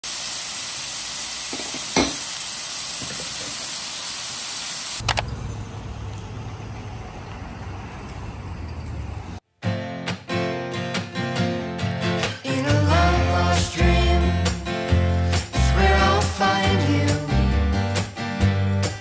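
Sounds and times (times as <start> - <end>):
food sizzling on grill pan: 0.0 - 5.0.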